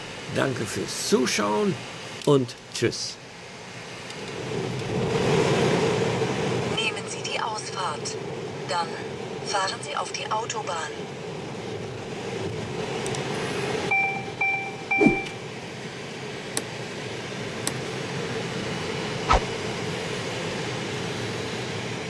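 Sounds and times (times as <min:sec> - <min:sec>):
car road and engine noise: 0:11.0 - 0:22.0
two-tone electronic beeps: 0:13.9 - 0:15.4.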